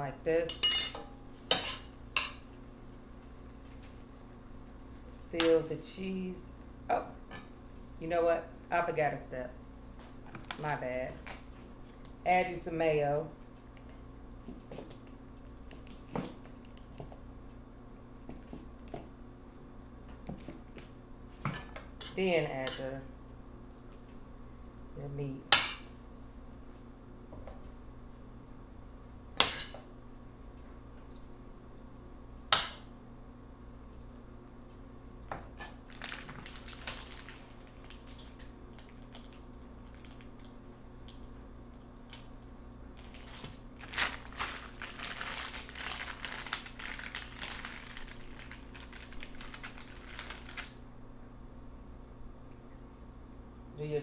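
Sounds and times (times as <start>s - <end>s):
plastic wrapping crinkling: 35.8s - 40.6s, 43.0s - 50.8s.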